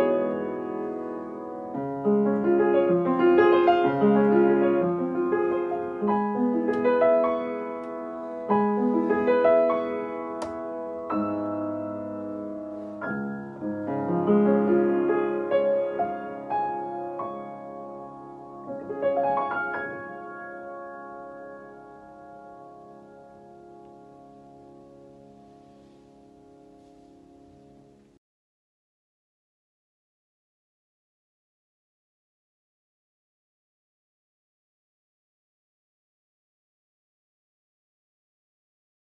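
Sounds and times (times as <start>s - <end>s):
upright piano playing: 0.0s - 28.2s.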